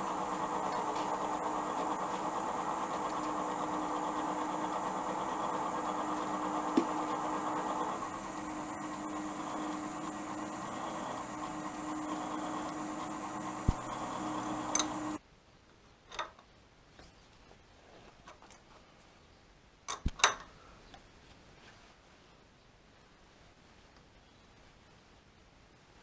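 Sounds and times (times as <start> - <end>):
milling machine humming: 0.0 - 15.2.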